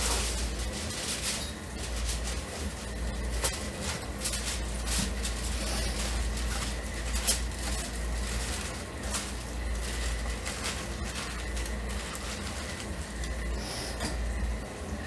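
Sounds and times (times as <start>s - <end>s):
plastic bag and foil crinkling: 0.0s - 15.0s.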